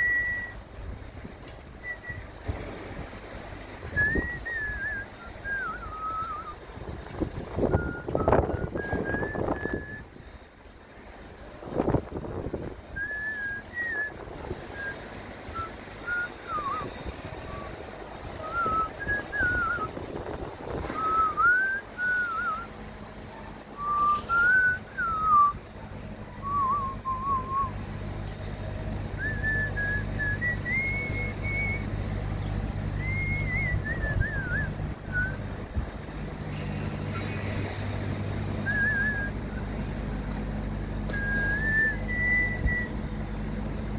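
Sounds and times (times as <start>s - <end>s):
person whistling a tune: 0.0s - 0.6s, 1.8s - 2.2s, 3.9s - 6.6s, 7.6s - 10.1s, 13.0s - 17.7s, 18.4s - 20.0s, 20.9s - 22.8s, 23.8s - 25.6s, 26.4s - 27.7s, 29.2s - 31.9s, 33.0s - 35.4s, 38.6s - 39.4s, 41.1s - 43.0s
low engine hum: 0.0s - 43.9s.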